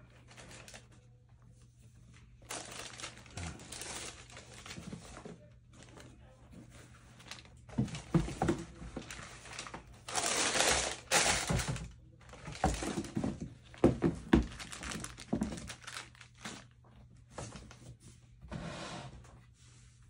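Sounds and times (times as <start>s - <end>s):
paper and plastic crinkling: 0.0s - 1.1s, 2.0s - 17.8s
shoes knocking on box: 12.5s - 14.7s.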